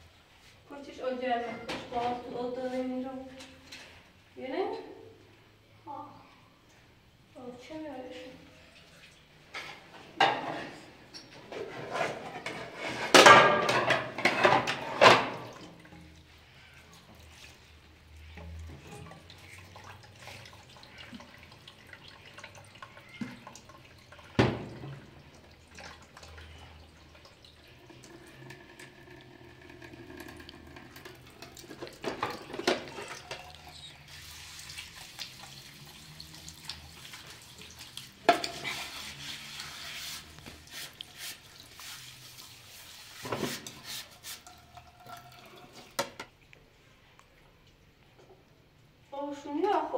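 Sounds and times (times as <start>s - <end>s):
dishes clattering in sink: 9.5s - 16.0s, 24.2s - 25.0s, 28.4s - 33.9s, 38.2s - 38.9s
tap water running into sink: 18.3s - 46.4s.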